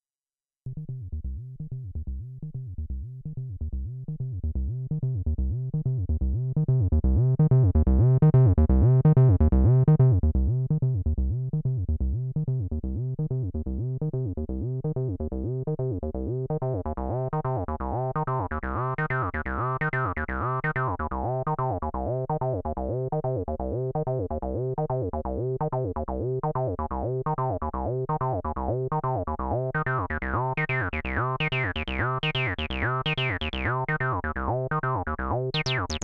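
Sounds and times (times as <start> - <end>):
synthesizer bass line: 25.6 - 36.0.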